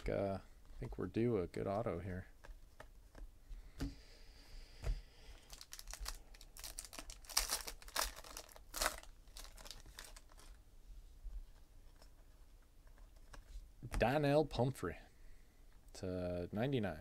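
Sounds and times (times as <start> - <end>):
foil wrapper crinkling and tearing: 5.4 - 10.6.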